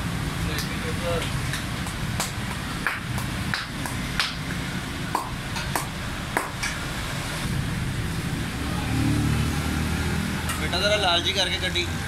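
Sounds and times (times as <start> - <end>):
street traffic rumble: 0.0 - 12.0.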